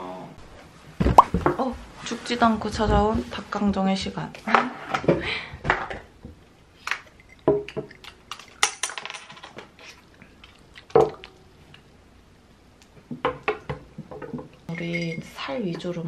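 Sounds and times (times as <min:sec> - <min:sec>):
glasses clinking: 0:07.1 - 0:09.3, 0:14.7 - 0:16.0.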